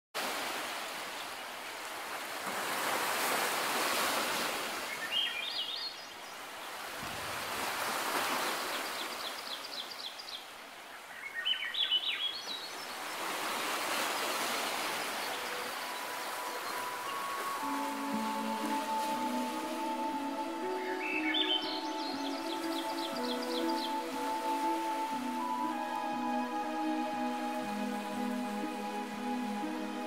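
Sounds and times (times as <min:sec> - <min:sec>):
surf washing over rocks: 0:00.2 - 0:05.1, 0:06.6 - 0:09.3, 0:12.9 - 0:26.6
bird chirping: 0:14.8 - 0:28.4.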